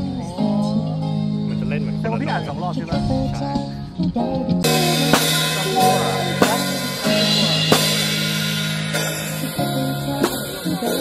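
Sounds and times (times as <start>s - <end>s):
band music: 0.0s - 11.0s
drum kit hits: 4.6s - 11.0s.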